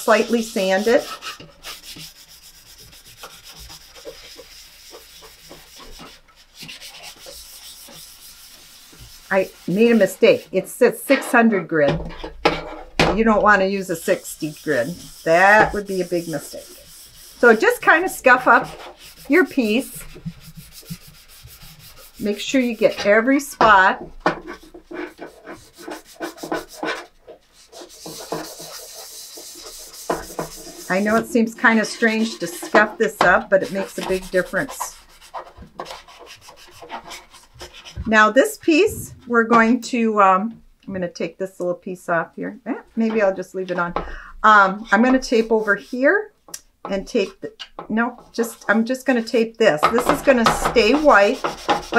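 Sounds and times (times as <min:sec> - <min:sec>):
sanding pad rubbing plastic: 0:00.0 - 0:10.5, 0:13.6 - 0:23.8, 0:24.4 - 0:38.0, 0:49.9 - 0:51.9.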